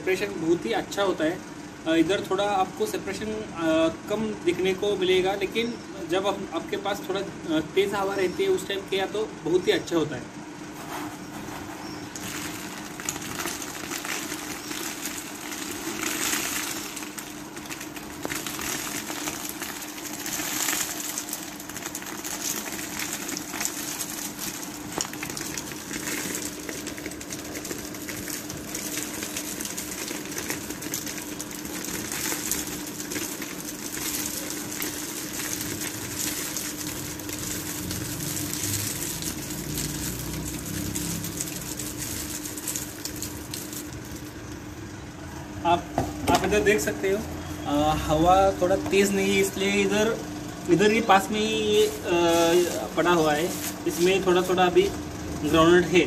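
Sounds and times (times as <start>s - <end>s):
fan blowing air: 0.0s - 56.0s
fan motor hum: 0.0s - 56.0s
nuts and shells pouring: 12.1s - 44.6s, 46.3s - 55.6s.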